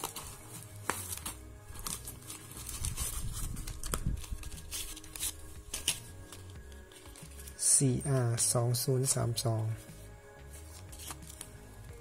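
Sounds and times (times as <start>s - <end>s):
packaging crinkling: 0.0s - 7.6s.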